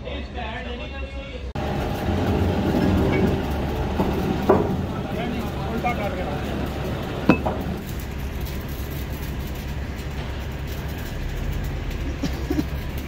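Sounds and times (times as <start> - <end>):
machinery rumbling: 1.5 - 13.0
metal clink: 7.2 - 13.0.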